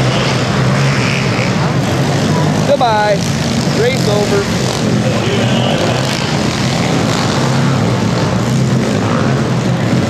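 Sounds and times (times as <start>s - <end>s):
pit bike engines racing: 0.0s - 10.0s.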